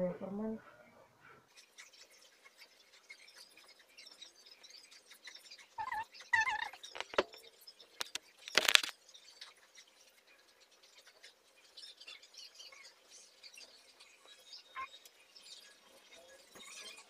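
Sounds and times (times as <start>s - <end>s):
hair rustling while braided: 6.6s - 7.4s, 8.0s - 8.9s.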